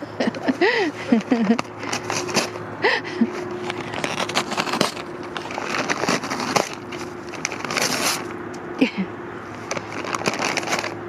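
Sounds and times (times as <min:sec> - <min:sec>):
paper bag crinkling and tearing: 0:01.2 - 0:02.6, 0:03.3 - 0:08.3, 0:09.5 - 0:11.0.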